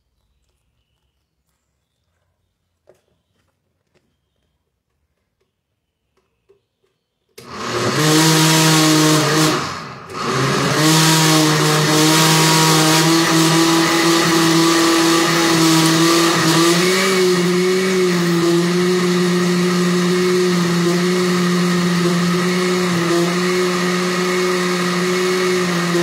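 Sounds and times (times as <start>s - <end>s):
blender motor humming: 7.4s - 26.0s.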